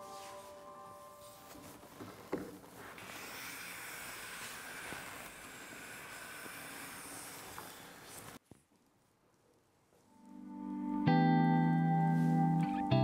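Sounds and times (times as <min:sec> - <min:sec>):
steady hiss: 0:00.0 - 0:08.4.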